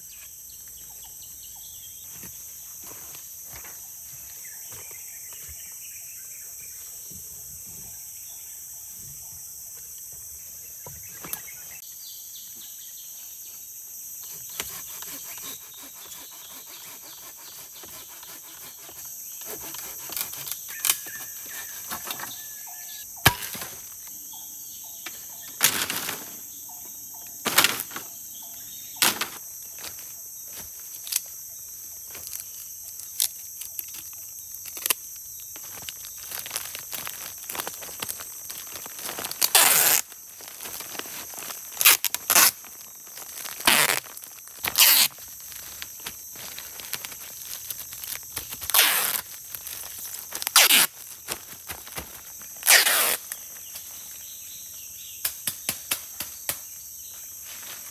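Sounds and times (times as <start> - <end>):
insects droning: 0.0 - 57.9.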